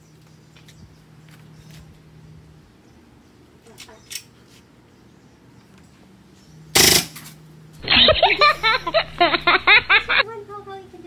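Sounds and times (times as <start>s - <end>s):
toy gun shot: 6.8s - 7.2s
woman laughing loudly: 7.8s - 10.2s.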